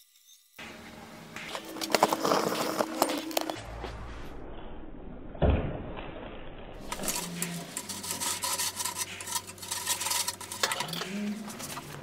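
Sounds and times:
oil crackling and sizzling: 6.8s - 12.0s.

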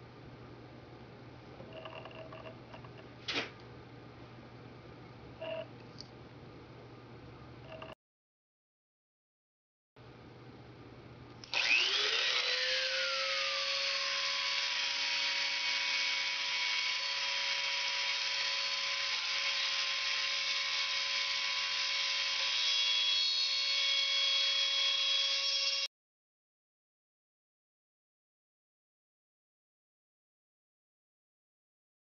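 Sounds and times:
rotary tool whining: 11.4s - 25.9s.

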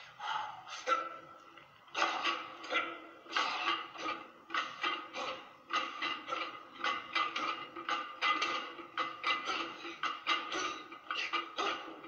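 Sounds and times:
man breathing forcefully: 0.0s - 0.9s.

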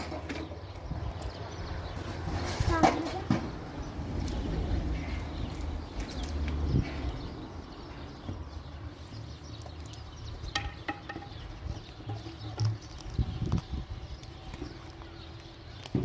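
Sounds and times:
wooden board knocks: 10.5s - 11.4s.

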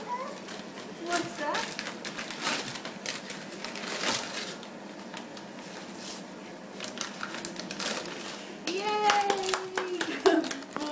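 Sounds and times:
wrapping paper rustling and tearing: 0.1s - 10.9s.

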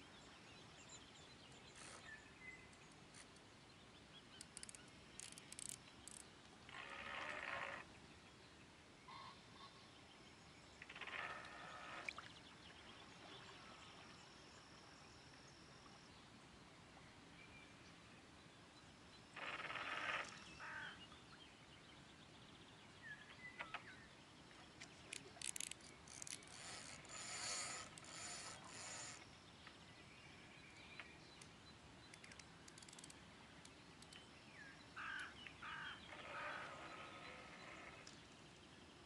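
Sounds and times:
fishing reel ratcheting and whirring: 4.4s - 6.2s, 25.4s - 29.2s, 32.7s - 33.1s.

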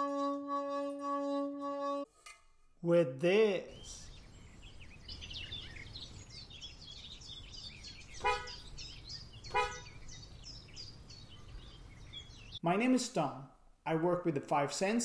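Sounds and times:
small birds chirping: 3.3s - 12.8s.

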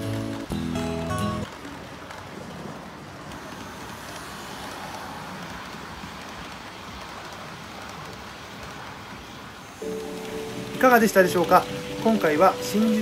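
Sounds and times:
model train wheels on rails: 0.0s - 13.0s
model locomotive motor: 3.3s - 13.0s.

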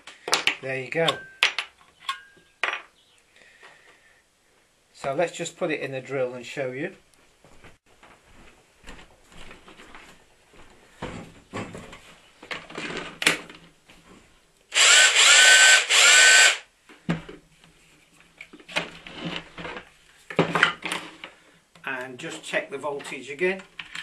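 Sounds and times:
cordless drill motor whining: 14.7s - 16.6s.

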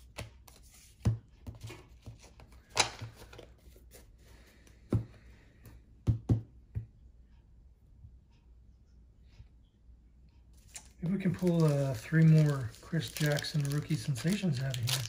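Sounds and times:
cards rustling: 0.0s - 4.2s, 10.6s - 15.0s.

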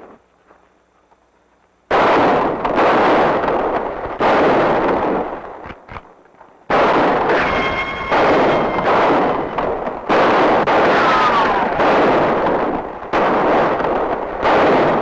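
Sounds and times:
echoing gunshots: 1.9s - 5.9s, 6.7s - 15.0s
ricochet whines: 7.1s - 11.9s.

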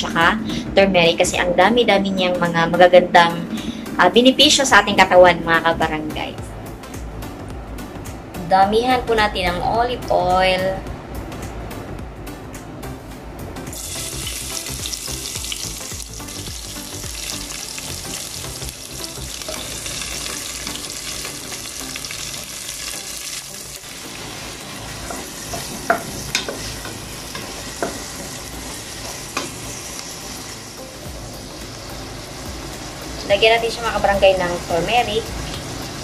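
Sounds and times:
onion and garlic sizzling in oil: 13.7s - 36.0s
wooden spoon knocking on pot: 25.0s - 26.7s.

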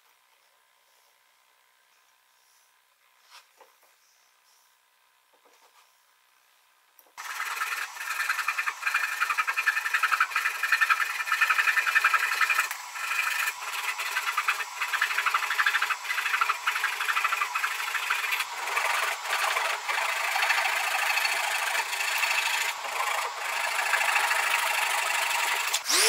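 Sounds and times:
handsaw cutting wood: 7.2s - 26.0s.

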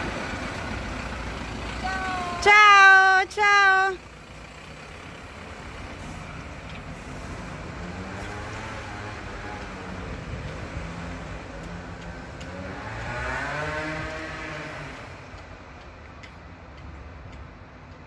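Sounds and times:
engine pulling away: 0.0s - 2.5s, 4.0s - 16.0s
rumble of running engines: 0.0s - 18.0s
vehicle engine accelerating: 4.0s - 15.8s.

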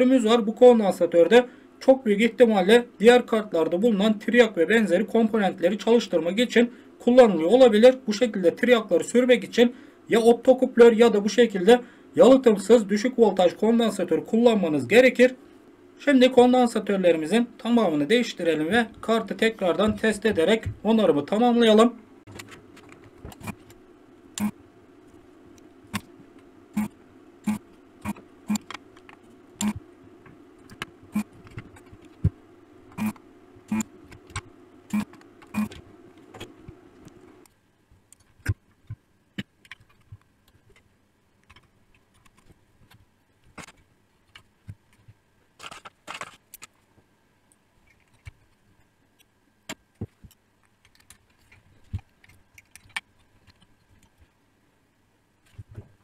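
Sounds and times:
circuit board being handled: 22.3s - 23.8s, 24.4s - 46.9s, 47.8s - 54.4s
desoldering tool humming: 23.2s - 37.6s.

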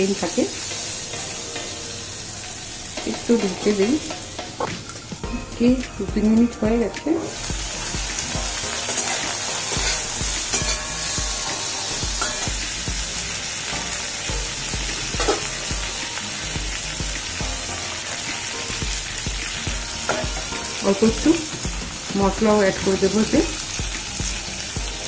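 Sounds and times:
vegetables sizzling in oil: 0.0s - 25.0s
utensils knocking against pan: 2.9s - 5.2s, 8.7s - 12.7s, 14.3s - 15.7s, 20.0s - 20.7s.

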